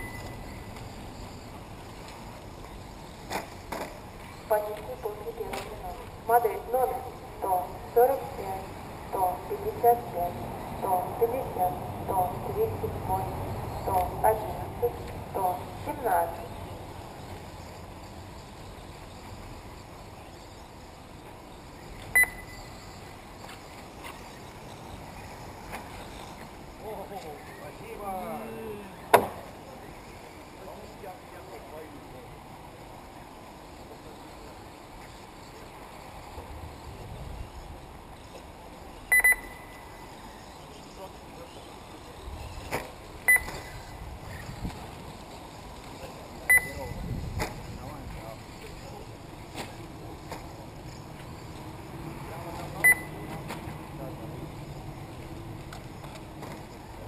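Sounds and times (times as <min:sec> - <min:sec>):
high-pitched beep with click: 0:00.0 - 0:00.6, 0:22.2 - 0:22.7, 0:39.1 - 0:39.8, 0:43.3 - 0:43.7, 0:46.5 - 0:47.0, 0:52.8 - 0:53.3
outdoor background noise: 0:00.0 - 0:57.0.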